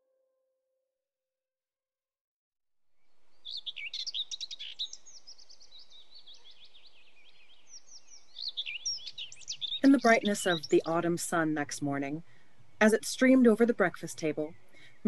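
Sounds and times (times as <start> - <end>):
birds chirping: 3.0 - 15.0
soft outdoor hiss: 3.0 - 15.0.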